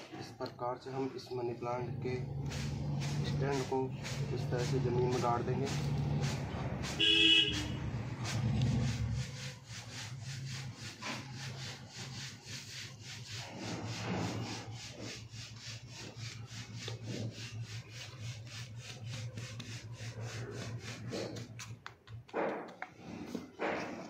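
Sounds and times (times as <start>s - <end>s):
scraping strokes: 0.0s - 24.0s.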